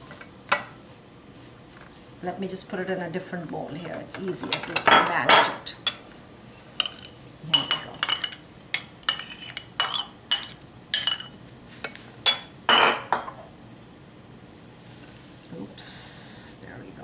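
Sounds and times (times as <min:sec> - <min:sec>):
metal spoon clinking on bowl: 0:06.8 - 0:11.3.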